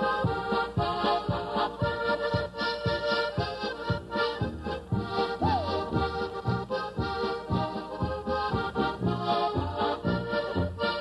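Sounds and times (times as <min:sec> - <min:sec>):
accordions playing a polka: 0:00.0 - 0:11.0.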